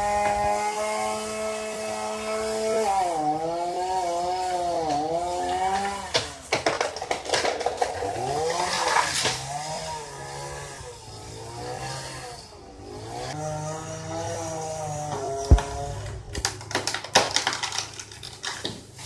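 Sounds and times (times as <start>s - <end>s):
chainsaw engine revving: 0.0s - 6.6s, 7.6s - 16.4s
sharp cracks: 15.4s - 18.9s.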